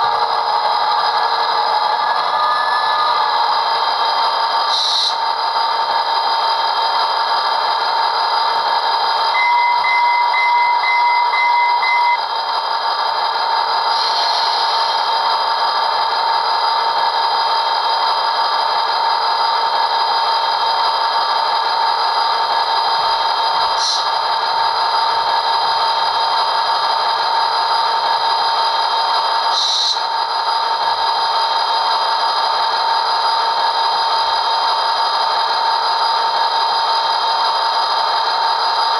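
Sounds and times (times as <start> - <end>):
model locomotive diesel engine sound: 0.0 - 38.9.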